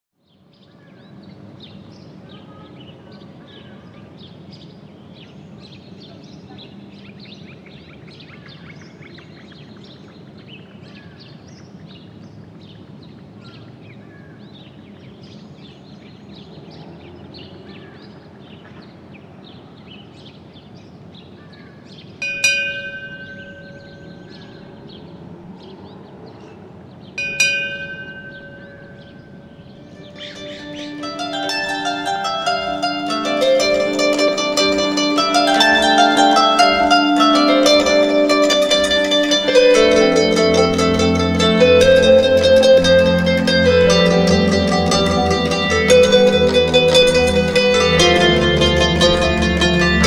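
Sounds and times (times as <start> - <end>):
low background noise: 0.2 - 50.0
birds chirping: 21.4 - 50.0
chime ringing: 22.2 - 24.8, 27.2 - 50.0.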